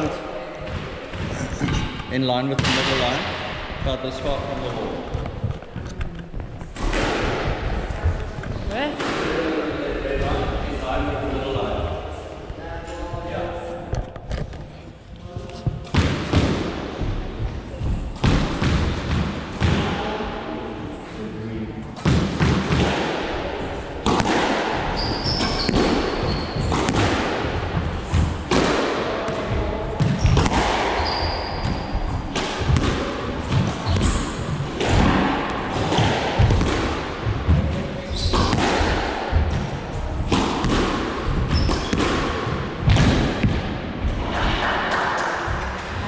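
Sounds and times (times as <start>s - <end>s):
squash ball smacking: 6.6s - 9.5s, 18.1s - 20.0s, 22.0s - 23.4s, 24.0s - 43.9s
shoes squeaking on wooden floor: 25.0s - 26.8s.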